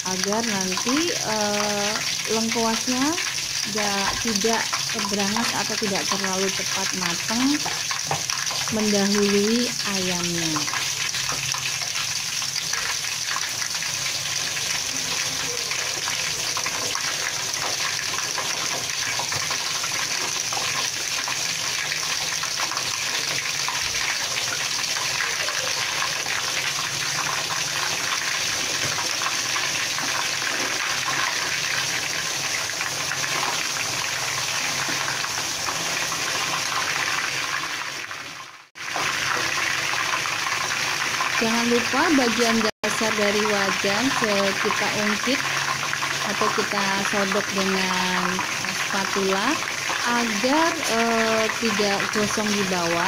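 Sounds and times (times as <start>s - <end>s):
chicken deep-frying in oil: 0.0s - 53.0s.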